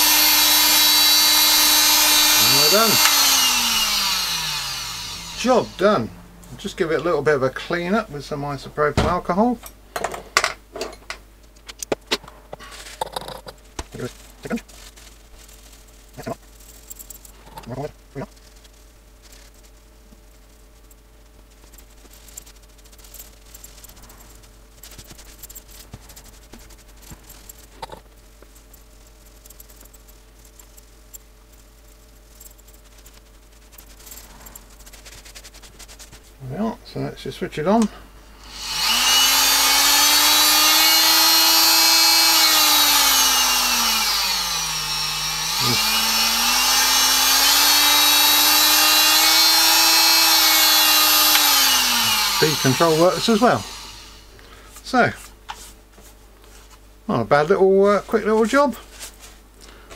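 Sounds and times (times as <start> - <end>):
oscillating multi-tool motor whine: 0.0 - 7.0, 38.3 - 54.4
tissue rubbing on plastic: 13.6 - 36.5, 57.9 - 59.6.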